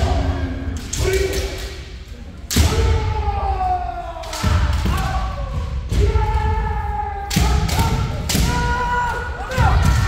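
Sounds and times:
people shouting: 2.5 - 10.0.

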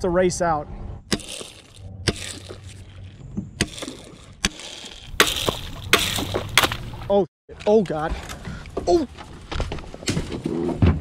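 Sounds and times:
water sloshing: 1.2 - 7.1.

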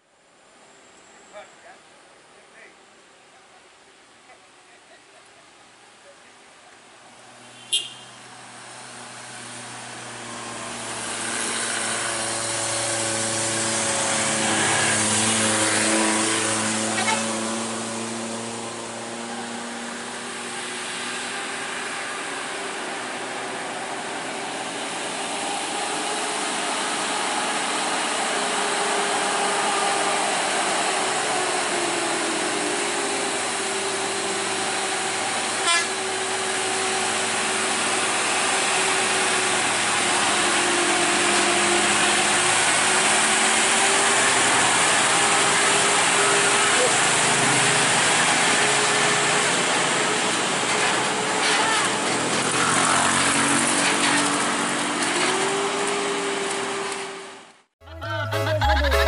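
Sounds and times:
car passing: 7.0 - 35.5
truck diesel engine running: 8.6 - 56.6.

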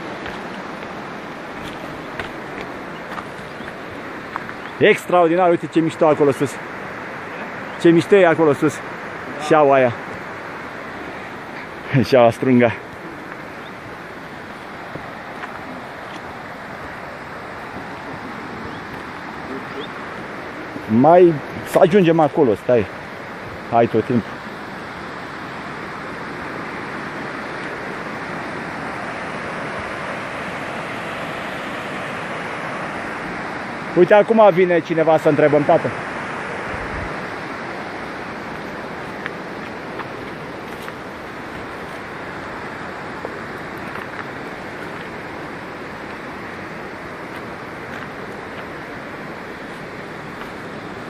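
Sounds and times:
footsteps on stony path: 0.0 - 4.8, 12.8 - 19.3, 38.3 - 51.0
creek waterfalls rushing: 0.0 - 51.0.

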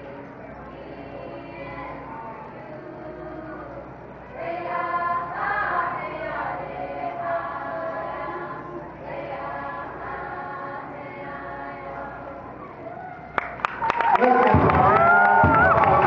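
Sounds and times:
group singing with hand drum: 2.7 - 12.5.

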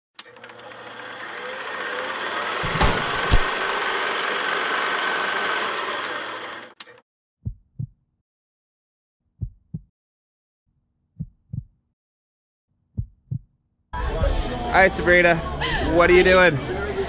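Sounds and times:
loud rushing rattle: 2.4 - 4.4
heartbeat thumps: 7.4 - 8.0, 9.4 - 9.9, 11.2 - 11.8, 13.0 - 13.5.

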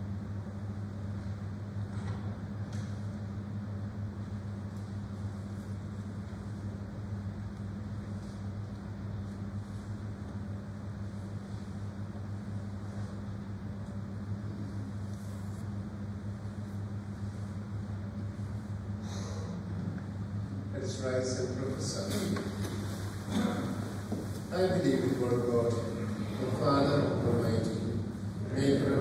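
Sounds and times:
low electrical hum: 0.0 - 29.0
constant hiss: 20.6 - 29.0.

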